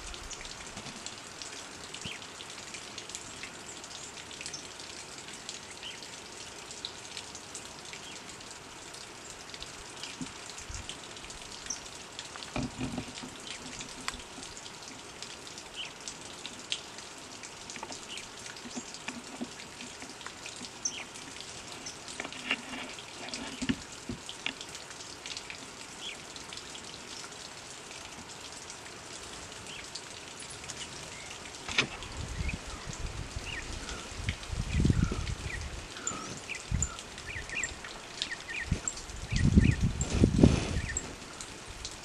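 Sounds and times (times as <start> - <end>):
steady woodland hiss: 0.0 - 42.0
small birds chirping: 2.0 - 2.3, 5.6 - 6.2, 7.9 - 8.3, 11.5 - 12.0, 15.7 - 16.0, 17.8 - 22.6, 29.6 - 31.5, 32.2 - 41.1.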